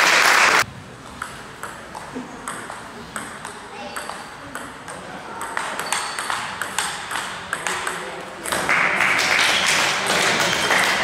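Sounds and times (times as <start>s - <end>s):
crowd noise: 0.0s - 11.0s.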